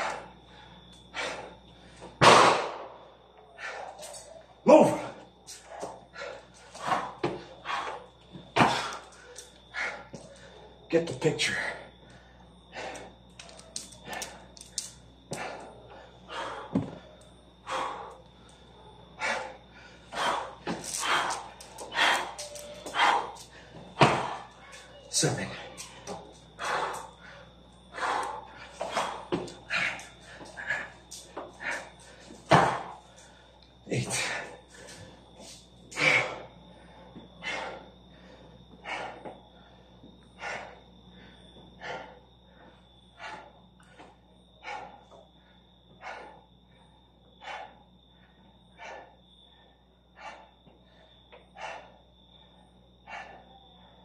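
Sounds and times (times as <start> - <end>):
man breathing hard: 0.0 - 54.0.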